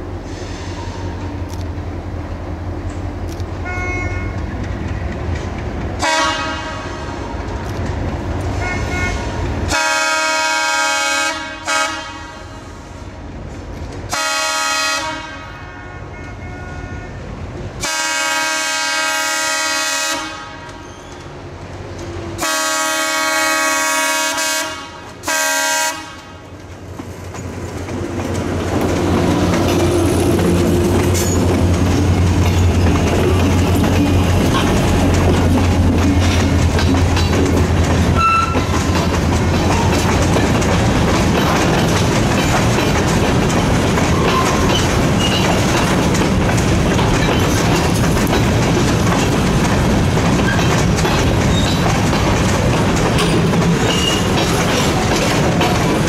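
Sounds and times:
diesel locomotive engines: 0:00.0 - 0:56.0
low rumble of approaching train: 0:00.0 - 0:56.0
wheels clicking over rail joints: 0:02.8 - 0:09.9, 0:26.2 - 0:56.0
locomotive horn blasts: 0:03.6 - 0:04.4, 0:06.0 - 0:07.2, 0:08.6 - 0:12.7, 0:14.1 - 0:20.8, 0:22.4 - 0:26.5, 0:38.2 - 0:38.7.

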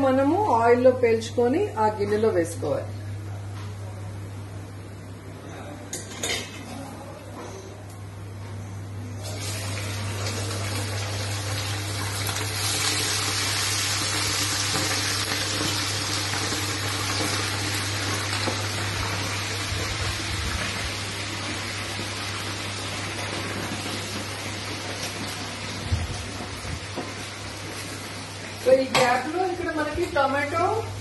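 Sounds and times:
chicken deep-frying in oil: 0:09.2 - 0:29.5.

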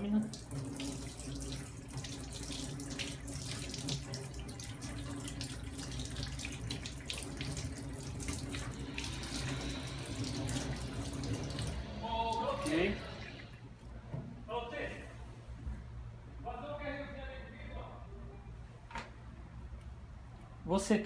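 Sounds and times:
tap water running into sink: 0:00.0 - 0:13.5.

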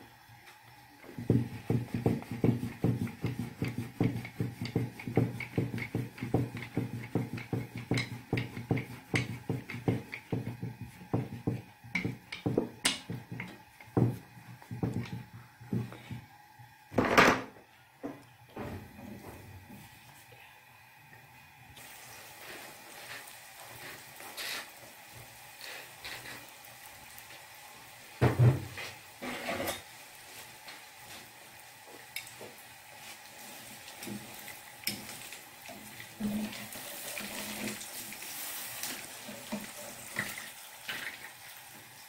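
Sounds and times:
rolling pin on wooden board: 0:01.2 - 0:16.0.

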